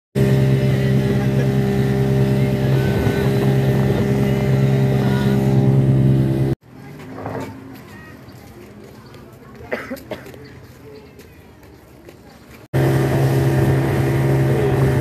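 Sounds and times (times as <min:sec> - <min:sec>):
boat engine droning: 0:00.2 - 0:06.6, 0:12.8 - 0:15.0.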